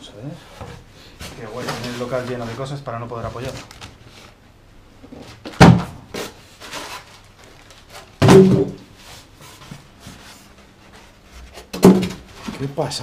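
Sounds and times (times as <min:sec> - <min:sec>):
cardboard cartons thudding: 0:05.3 - 0:07.0, 0:07.9 - 0:09.0, 0:11.6 - 0:12.7.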